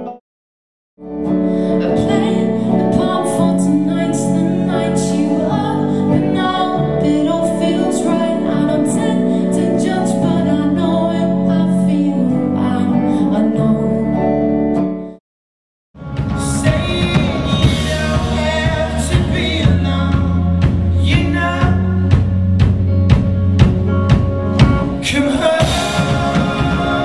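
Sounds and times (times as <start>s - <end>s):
electric guitar: 1.0s - 15.2s, 16.0s - 27.0s
woman singing: 1.6s - 14.4s.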